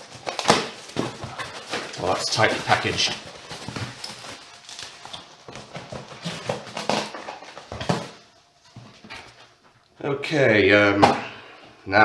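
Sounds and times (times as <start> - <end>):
bubble wrap rustling and crinkling: 0.0 - 9.0.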